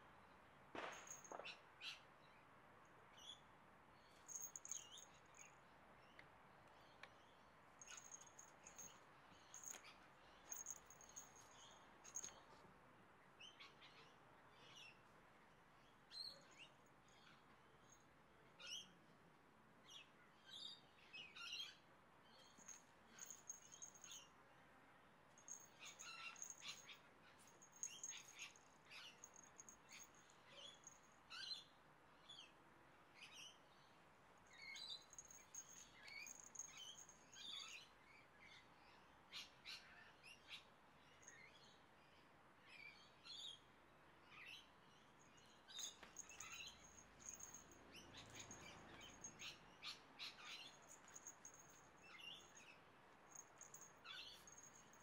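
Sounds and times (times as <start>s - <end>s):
small jingle bell tinkling: 4.2s - 5.6s, 7.8s - 12.6s, 22.4s - 24.3s, 25.4s - 31.6s, 34.5s - 37.8s, 45.2s - 55.0s.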